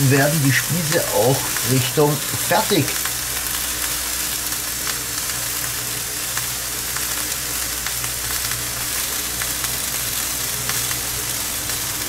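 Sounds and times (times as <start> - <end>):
food sizzling on a grill: 0.0 - 12.0
ventilation fan humming: 0.0 - 12.0.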